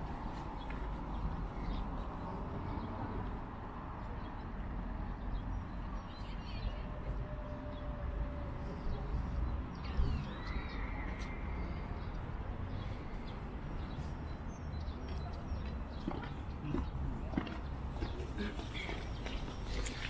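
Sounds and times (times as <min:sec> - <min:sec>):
low city rumble: 0:00.0 - 0:20.0
faint bird chirps: 0:09.8 - 0:12.0.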